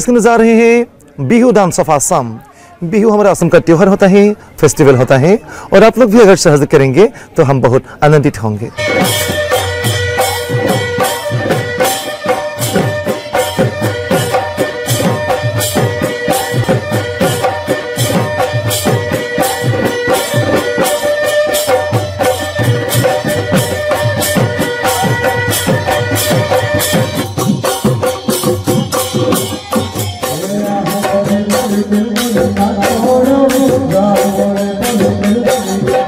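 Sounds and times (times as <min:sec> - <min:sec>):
drums beating fast rhythm: 0:08.7 - 0:36.0
held melody line: 0:08.7 - 0:36.0.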